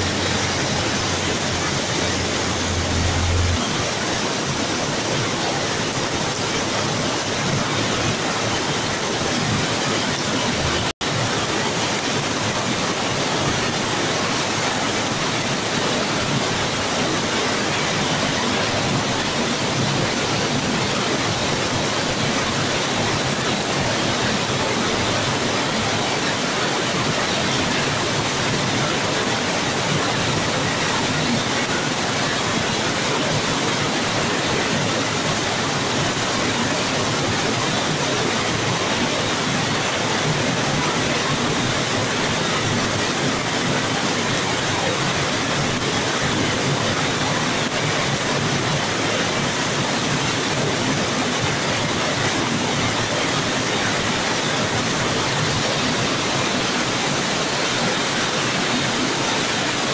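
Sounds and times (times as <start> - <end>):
heavy rain downpour: 0.0 - 59.9.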